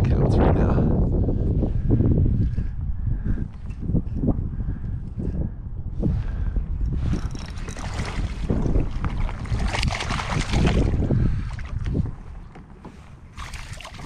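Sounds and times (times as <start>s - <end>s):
wind buffeting microphone: 0.0s - 14.0s
water splashing and sloshing: 6.9s - 14.0s.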